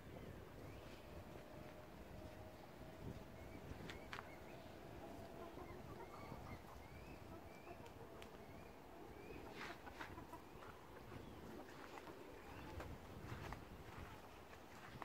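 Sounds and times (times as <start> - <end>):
low outdoor rumble: 0.0 - 15.0
faint bird chirps: 2.8 - 13.4.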